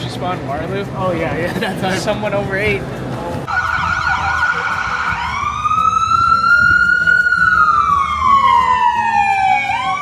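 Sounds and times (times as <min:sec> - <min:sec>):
ambulance siren wailing: 0:03.5 - 0:10.0.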